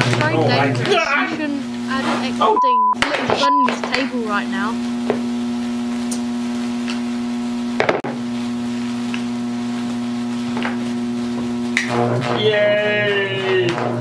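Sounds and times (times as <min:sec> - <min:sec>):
transformer electrical hum: 0:00.0 - 0:14.0
sharp electric crack: 0:11.7 - 0:12.4.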